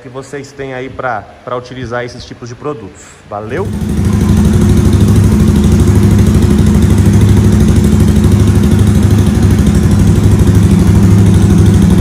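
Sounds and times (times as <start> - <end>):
motorcycle engine idling: 3.5 - 12.0.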